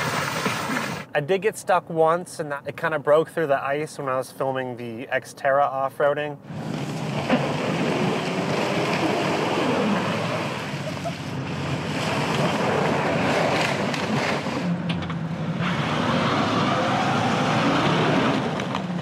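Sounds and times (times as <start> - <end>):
wheels churning icy water: 0.0 - 1.1, 6.5 - 14.8.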